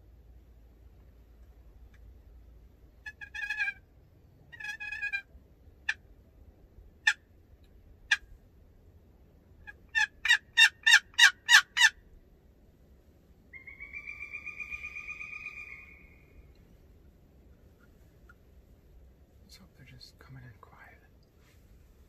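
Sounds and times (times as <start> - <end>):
turkey clucks: 3.0 - 3.8, 4.5 - 5.3, 9.6 - 12.0
turkey yelps: 3.0 - 3.8, 4.5 - 5.3, 9.6 - 12.0, 13.5 - 16.4
drawn-out turkey call: 3.0 - 3.9, 4.5 - 6.1, 7.0 - 8.4, 9.6 - 12.1, 13.5 - 16.5.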